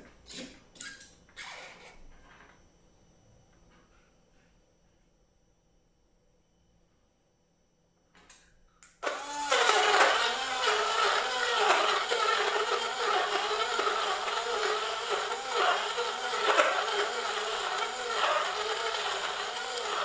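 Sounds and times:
blender motor churning: 0:09.0 - 0:20.0.

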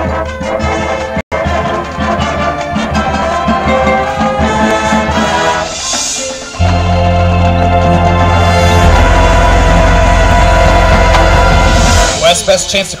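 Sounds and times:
marching band brass and percussion: 0:00.0 - 0:13.0
low sustained brass chord: 0:03.2 - 0:13.0.

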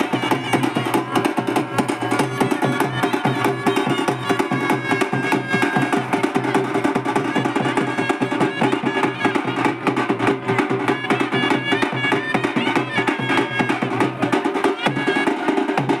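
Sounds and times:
fast steady drumming: 0:00.0 - 0:16.0.

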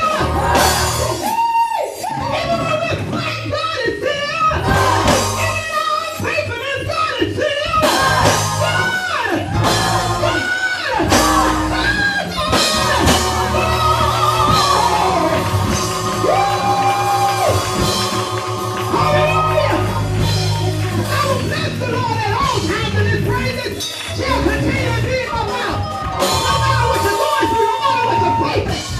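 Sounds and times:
drum kit: 0:00.0 - 0:06.7, 0:07.6 - 0:28.9
gospel band music: 0:00.0 - 0:28.9
person singing: 0:07.7 - 0:21.1.

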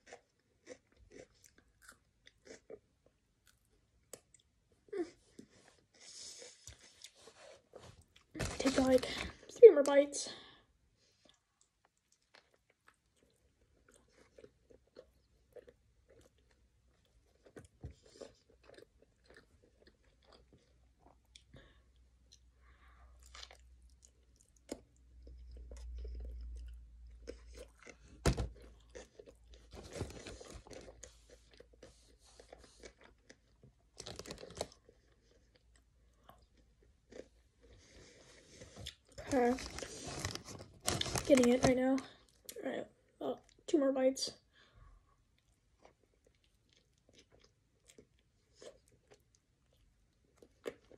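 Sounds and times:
biting and chewing: 0:23.2 - 0:37.8.

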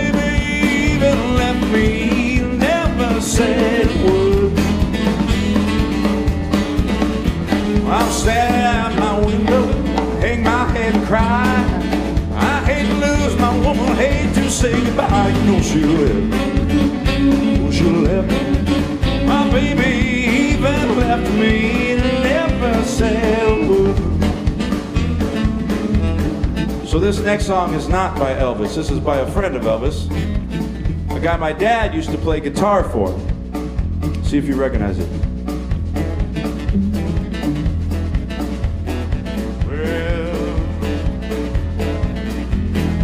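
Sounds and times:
live rock band playing: 0:00.0 - 0:43.0.

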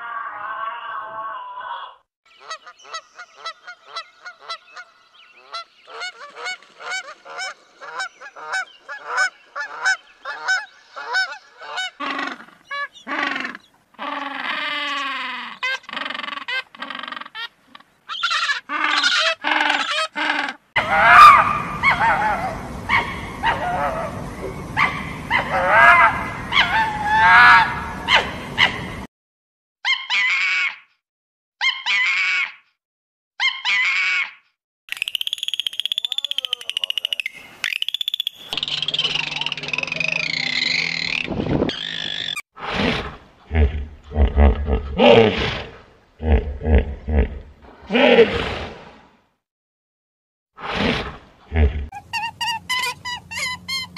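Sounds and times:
geese honking: 0:02.4 - 0:13.5, 0:20.8 - 0:27.9, 0:38.6 - 0:42.4
animal calls: 0:06.2 - 0:28.8, 0:38.4 - 0:45.5, 0:51.6 - 0:53.9
penguins calling: 0:38.6 - 0:42.4.

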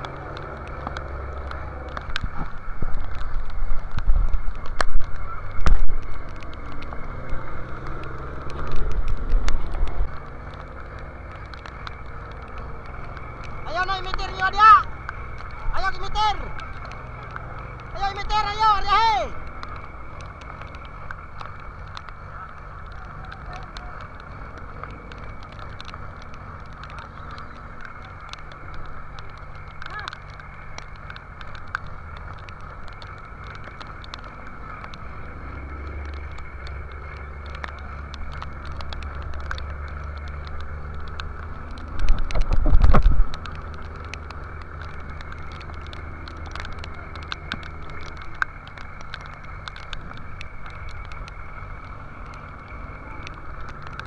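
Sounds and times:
sharp ticks of spray: 0:00.2 - 0:54.0.

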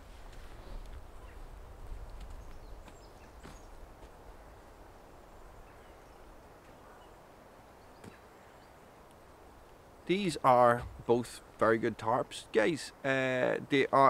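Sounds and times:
footsteps on forest floor: 0:00.0 - 0:04.3
wind rumble on microphone: 0:00.0 - 0:06.5, 0:10.8 - 0:11.1.

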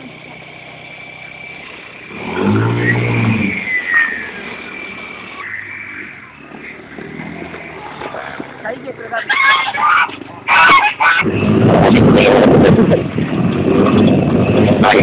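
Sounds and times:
quad engine revving: 0:00.0 - 0:15.0.

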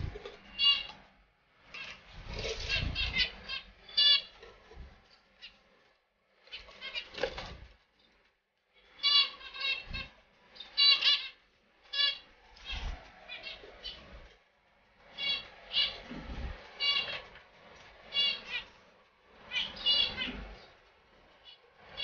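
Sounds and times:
finches chirping: 0:00.0 - 0:00.9, 0:01.8 - 0:04.4, 0:08.8 - 0:14.1, 0:15.1 - 0:17.4, 0:18.0 - 0:18.8, 0:19.5 - 0:22.0.

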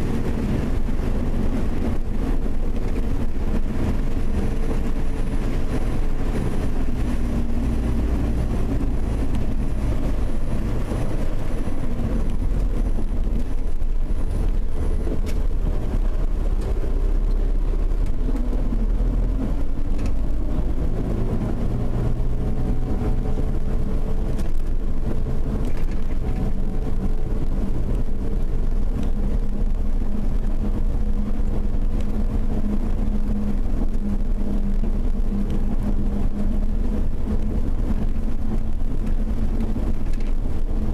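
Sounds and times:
car engine hum: 0:00.0 - 0:40.9
road noise: 0:00.0 - 0:40.9.

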